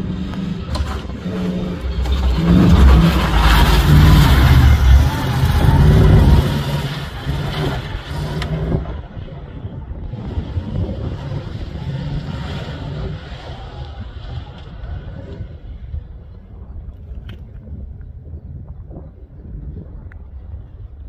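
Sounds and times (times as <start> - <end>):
racing vehicle engine revving by: 0.0 - 15.8.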